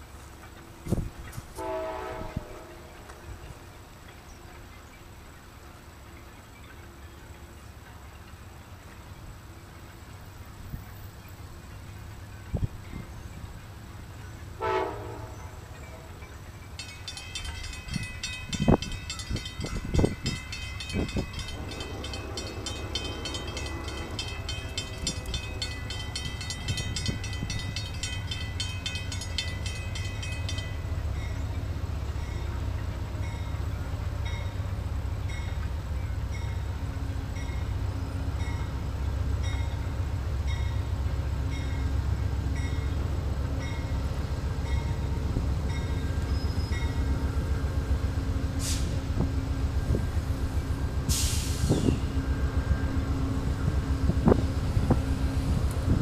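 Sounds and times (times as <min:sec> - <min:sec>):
diesel locomotive engine rumble: 0:00.0 - 0:56.0
bells ringing: 0:15.8 - 0:31.6.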